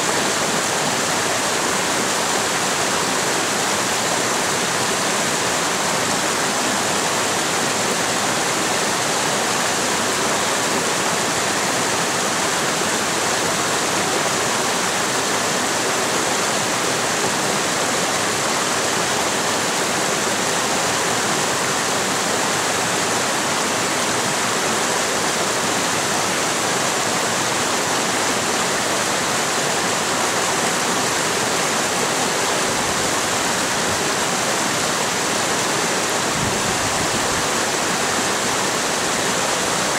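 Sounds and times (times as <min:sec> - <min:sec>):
creek water rushing over boulders: 0:00.0 - 0:39.9.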